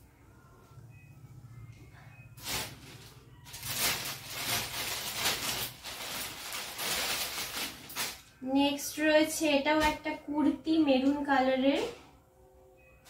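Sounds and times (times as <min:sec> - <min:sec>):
cloth rustling: 0:02.4 - 0:08.2
plastic packets crinkling: 0:02.4 - 0:08.4.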